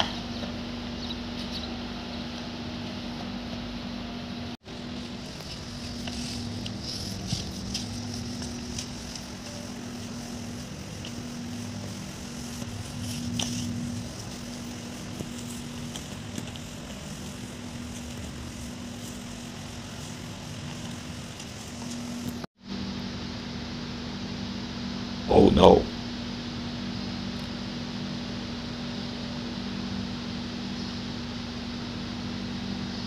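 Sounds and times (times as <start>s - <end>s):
steady low hum: 0.0s - 33.0s
mop pushed over tile floor: 4.7s - 22.5s.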